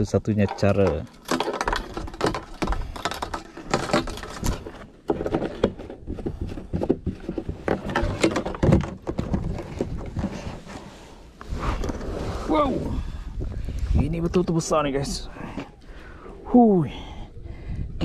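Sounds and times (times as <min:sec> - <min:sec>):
rapid clattering and knocking: 0:00.4 - 0:10.7.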